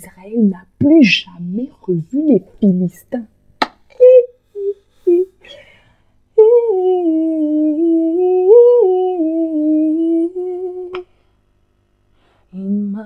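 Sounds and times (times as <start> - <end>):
woman humming: 0.8 - 2.9, 3.9 - 5.6, 6.4 - 11.0.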